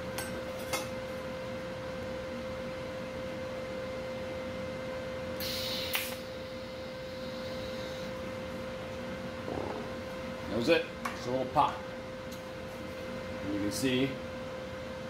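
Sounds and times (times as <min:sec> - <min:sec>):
steady hum: 0:00.0 - 0:15.0
welding arc hissing buzz: 0:05.4 - 0:08.2
sharp click: 0:05.8 - 0:06.2.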